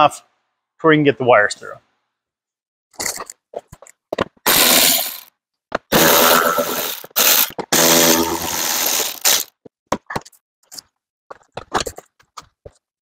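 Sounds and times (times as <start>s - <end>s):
electric ratchet whirring: 4.5s - 5.3s, 5.9s - 9.5s.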